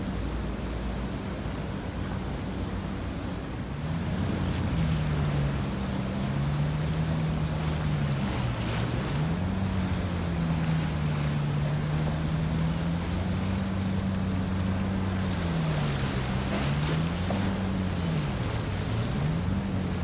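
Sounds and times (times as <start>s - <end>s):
ferry engines running: 0.0s - 20.0s
water wash: 0.0s - 20.0s.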